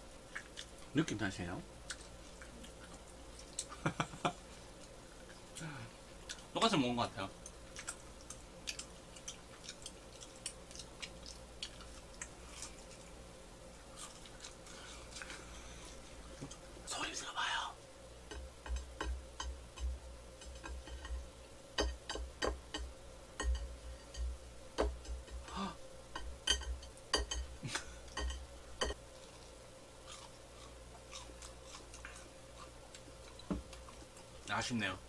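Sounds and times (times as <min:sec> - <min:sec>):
rice cake bouncing on a tray: 0:21.8 - 0:25.5.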